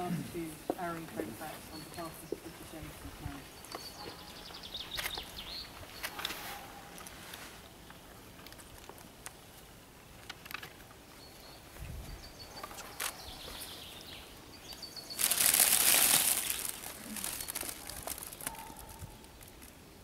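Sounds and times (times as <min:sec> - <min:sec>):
cellophane crinkling: 0:15.2 - 0:19.9.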